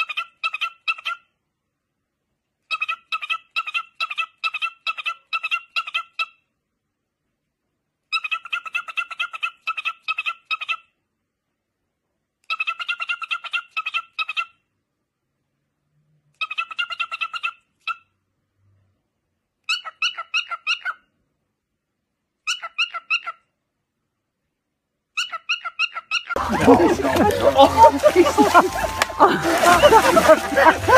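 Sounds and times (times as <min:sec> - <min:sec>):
cockatiel chirping: 0:19.7 - 0:21.0, 0:22.4 - 0:23.4, 0:25.2 - 0:26.4.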